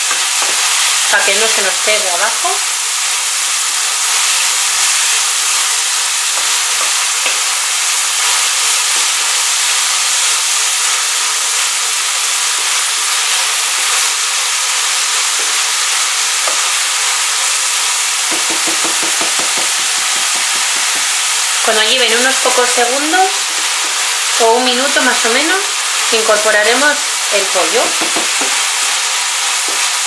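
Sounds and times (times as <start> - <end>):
vegetables sizzling in oil: 0.0 - 30.0
wooden spoon scraping pan: 23.4 - 24.1.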